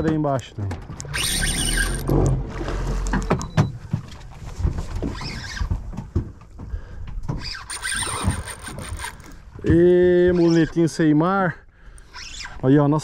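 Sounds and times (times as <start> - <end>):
knocks and clatter on a boat: 0.0 - 1.1, 2.1 - 7.6
low motor hum: 0.8 - 4.1.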